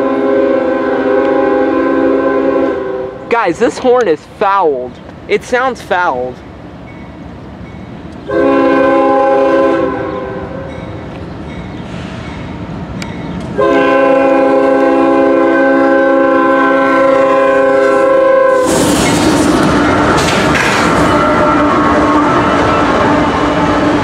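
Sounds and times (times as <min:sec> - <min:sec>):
locomotive air horn blasts: 0:00.0 - 0:03.2, 0:08.3 - 0:10.7, 0:13.6 - 0:18.8
locomotive engine and wheel noise: 0:03.2 - 0:09.2, 0:10.0 - 0:24.0.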